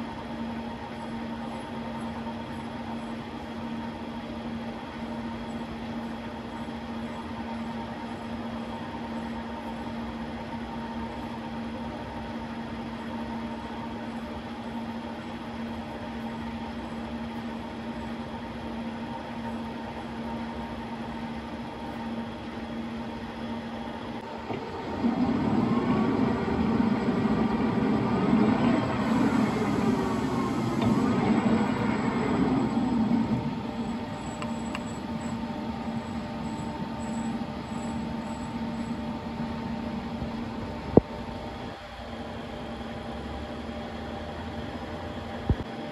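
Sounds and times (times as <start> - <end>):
lathe motor hum: 24.1 - 41.0
lathe chuck spinning whine: 24.2 - 41.0.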